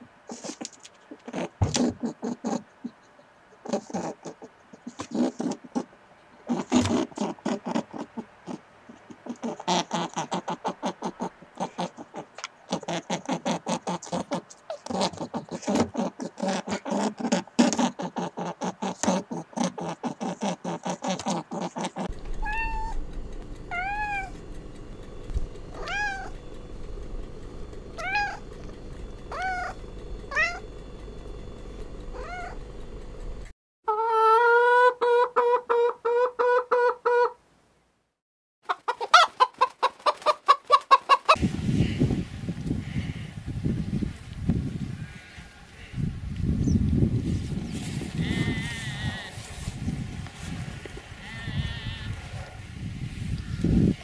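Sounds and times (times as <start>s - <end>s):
steady low hum: 19.2s - 33.5s, 41.4s - 54.0s
cat meowing: 22.4s - 23.0s, 23.7s - 24.4s, 25.8s - 26.3s, 28.0s - 28.4s, 29.3s - 30.6s, 32.2s - 32.6s.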